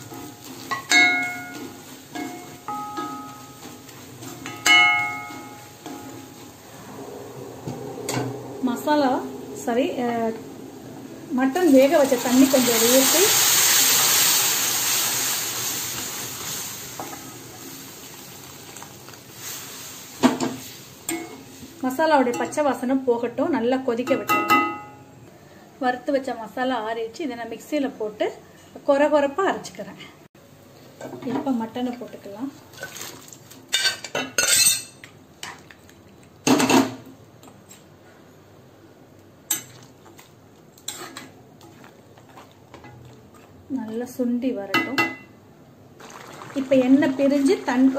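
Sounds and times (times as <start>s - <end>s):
water sizzling in hot pan: 0.0s - 6.6s, 11.3s - 22.4s, 46.0s - 47.9s
steel ladle scraping a pan: 0.0s - 10.5s, 40.8s - 43.5s.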